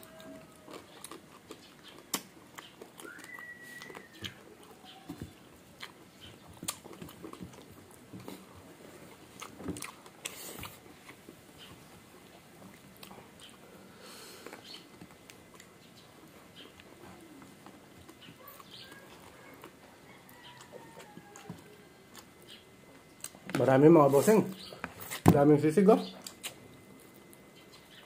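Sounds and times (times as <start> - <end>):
chewing and crunching: 0.0 - 25.2, 26.1 - 28.0
fingers picking at food: 26.2 - 27.9.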